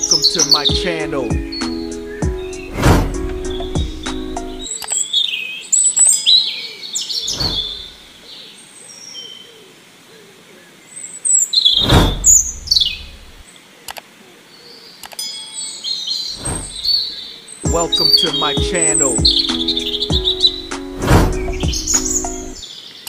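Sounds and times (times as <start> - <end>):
birds chirping and twittering: 0.0 - 23.0
loud rushing sounds: 2.7 - 4.1, 7.3 - 7.9, 11.8 - 13.4, 16.4 - 17.0.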